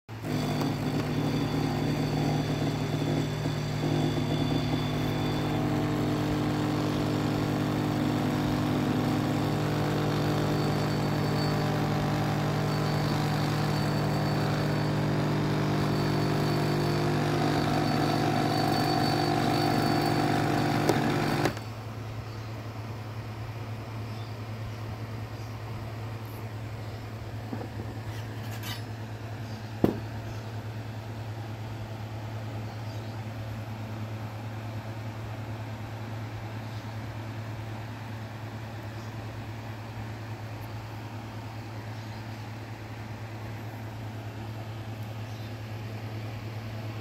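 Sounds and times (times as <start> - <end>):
espresso machine pump humming: 0.1 - 21.6.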